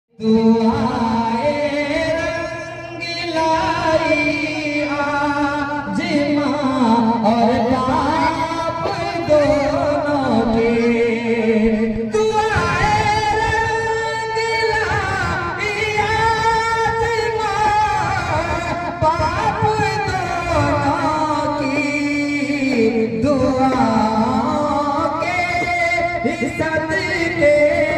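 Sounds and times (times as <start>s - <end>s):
man singing into a microphone: 0.1s - 27.9s.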